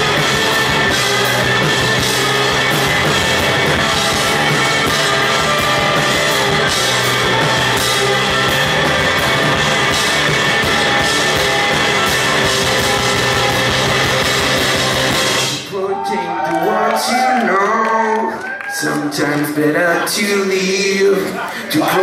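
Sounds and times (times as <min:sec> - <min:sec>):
rock band playing loudly: 0:00.0 - 0:15.9
man singing: 0:15.5 - 0:22.0.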